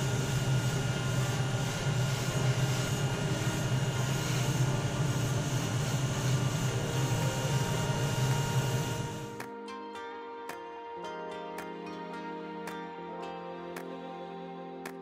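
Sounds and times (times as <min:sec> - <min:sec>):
airbrush air hissing: 0:00.0 - 0:09.4
extractor fan hum: 0:00.0 - 0:09.4.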